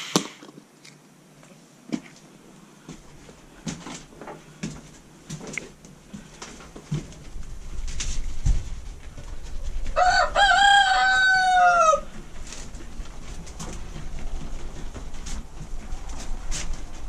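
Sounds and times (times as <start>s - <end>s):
rooster crowing: 9.9s - 12.2s.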